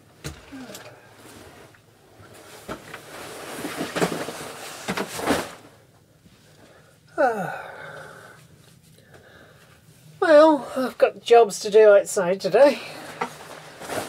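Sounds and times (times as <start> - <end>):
rustling handling noise: 1.1 - 6.6, 13.0 - 14.0.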